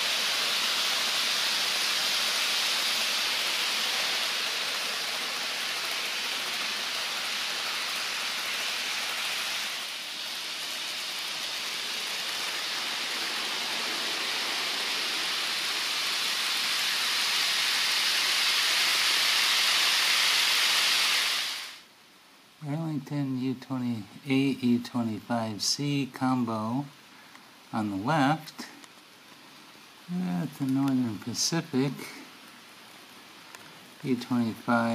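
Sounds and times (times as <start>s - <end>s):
model train cars rolling: 0.0s - 21.8s, 29.3s - 34.9s.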